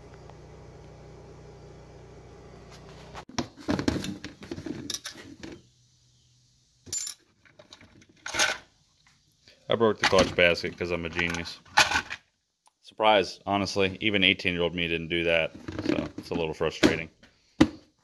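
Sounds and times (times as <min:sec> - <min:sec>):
metal tools clinking and rattling: 0:04.7 - 0:05.3.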